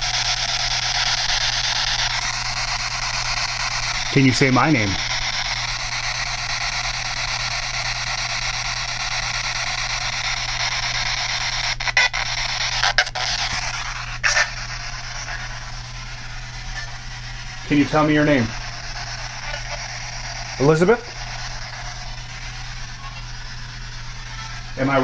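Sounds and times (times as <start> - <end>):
low hum: 0.0 - 25.0
radio static hiss: 0.0 - 25.0.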